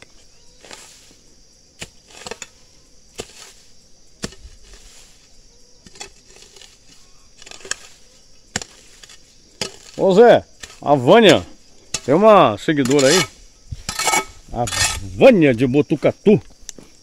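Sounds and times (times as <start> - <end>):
weeds rustling: 0.0 - 15.6
hoe chopping into ground: 1.8 - 5.2, 5.8 - 15.2.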